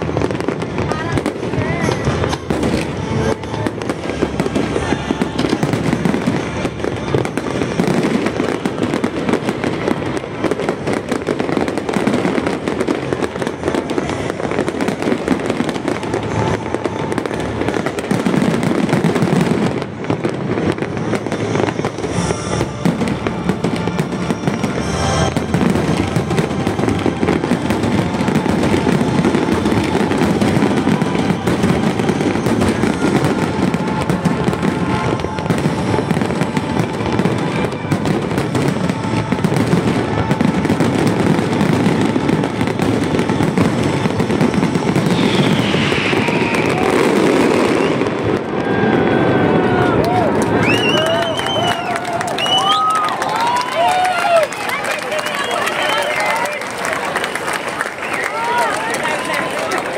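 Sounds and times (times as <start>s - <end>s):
firework shells bursting: 20.7s - 48.4s.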